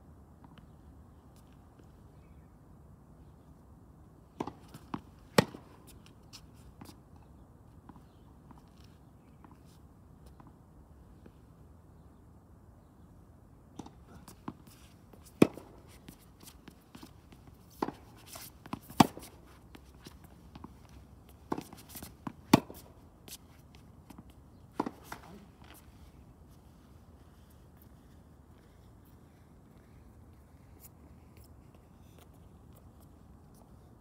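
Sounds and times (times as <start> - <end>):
tennis ball bouncing: 4.4 - 5.9, 13.8 - 23.4, 24.1 - 25.8
tennis racket striking ball: 15.4 - 16.8, 17.7 - 19.9, 21.4 - 22.9.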